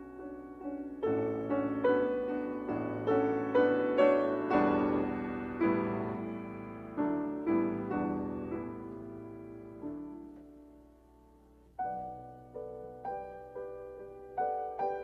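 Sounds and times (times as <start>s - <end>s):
piano single notes: 0.0s - 11.2s.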